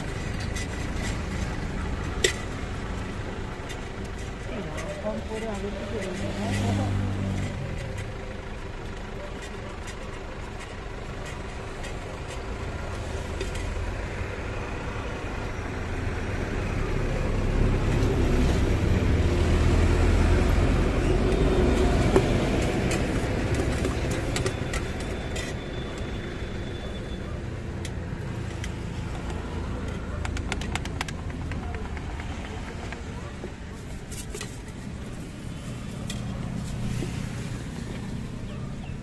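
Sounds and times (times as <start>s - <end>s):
vehicle passing: 4.6s - 7.8s.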